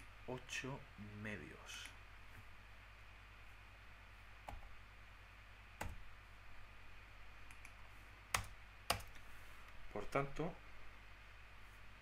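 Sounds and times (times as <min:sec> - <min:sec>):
faint low hum: 0:00.0 - 0:12.0
keyboard and mouse clicks: 0:07.5 - 0:09.2.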